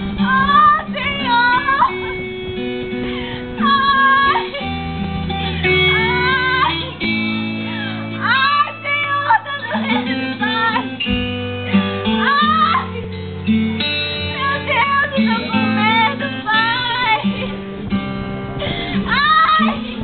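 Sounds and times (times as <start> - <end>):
low bass notes: 0.0 - 8.4
guitar: 0.0 - 20.0.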